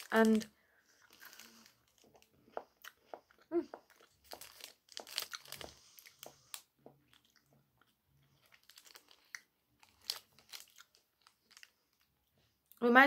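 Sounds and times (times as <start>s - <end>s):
wrapper rustling: 0.0s - 2.2s, 4.2s - 6.6s, 8.4s - 12.1s
chewing: 0.9s - 12.1s.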